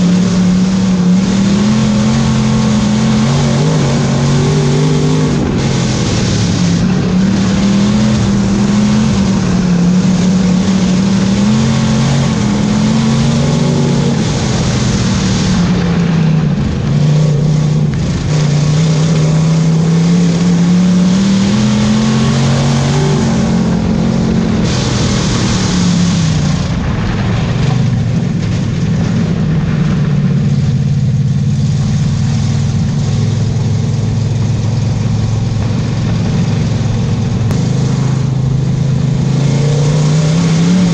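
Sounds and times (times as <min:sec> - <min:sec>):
racing car engine revving: 0:00.0 - 0:40.9.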